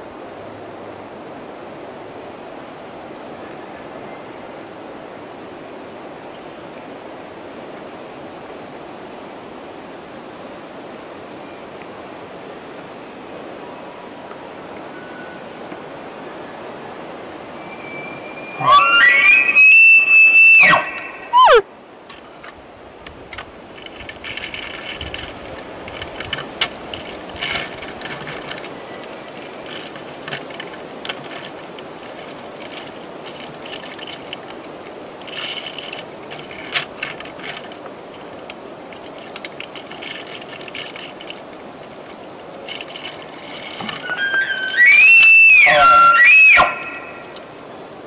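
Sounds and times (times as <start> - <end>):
elk bugling: 17.5 - 21.6, 42.8 - 47.4
faint clicks and ticks: 22.1 - 44.0.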